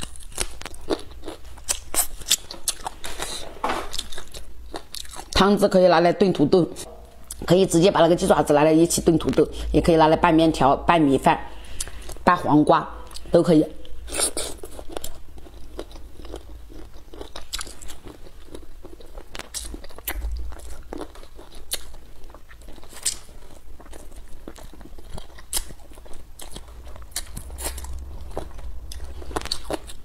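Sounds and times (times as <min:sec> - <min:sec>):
person chewing and crunching: 0:00.0 - 0:05.4, 0:13.0 - 0:30.0.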